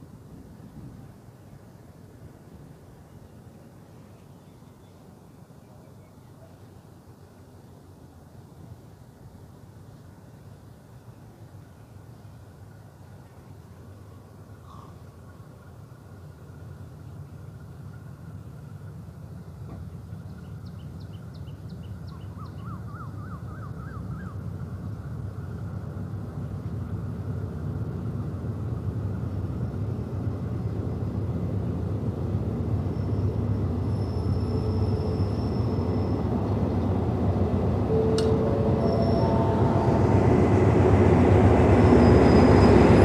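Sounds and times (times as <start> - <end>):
diesel locomotive engine rumble: 0.0 - 43.0
high thin squeal: 37.9 - 43.0.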